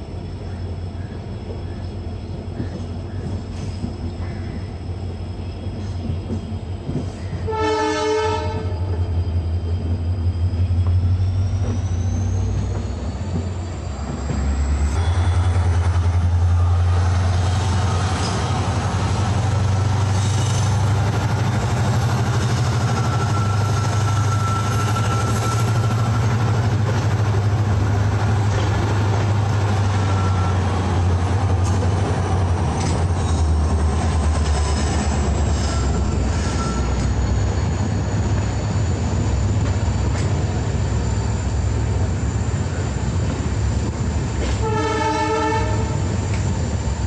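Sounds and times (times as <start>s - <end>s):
diesel locomotive drone: 0.0s - 47.0s
train horn blowing: 7.4s - 9.1s, 44.4s - 46.1s.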